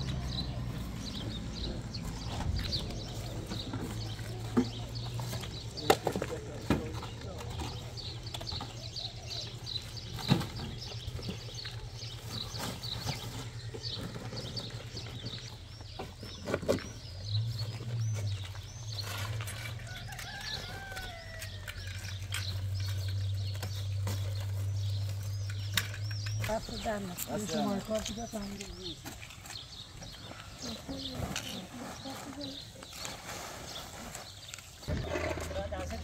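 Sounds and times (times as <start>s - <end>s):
small birds chirping: 0.0s - 36.0s
rooster crowing: 19.8s - 21.8s.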